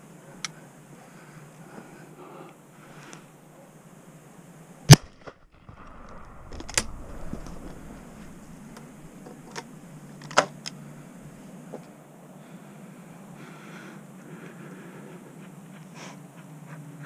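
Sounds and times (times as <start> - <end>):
shotgun shot: 4.9 - 9.6
sharp cracks: 4.9 - 10.8.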